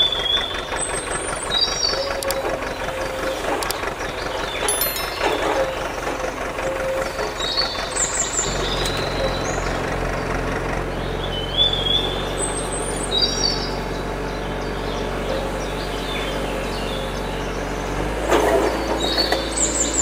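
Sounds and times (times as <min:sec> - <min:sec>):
birds chirping: 0:00.0 - 0:20.0.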